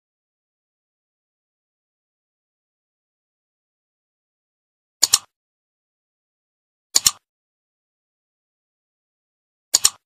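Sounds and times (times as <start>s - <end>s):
mouse clicks: 5.0s - 5.3s, 7.0s - 7.3s, 9.7s - 10.0s.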